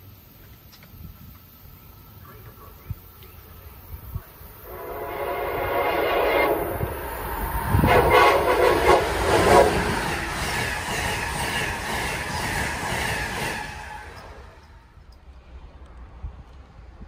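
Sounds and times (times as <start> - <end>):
train running noise: 0.0 - 17.0
train horn blasts: 4.6 - 10.1.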